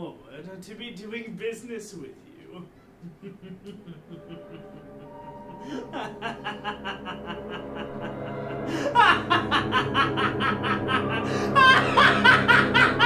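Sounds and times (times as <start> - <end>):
man laughing: 2.3 - 13.0
background music: 3.6 - 13.0.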